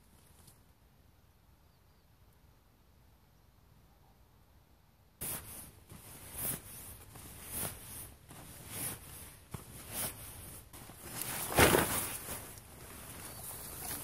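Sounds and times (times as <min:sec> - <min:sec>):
nylon rustling: 0:05.2 - 0:14.0.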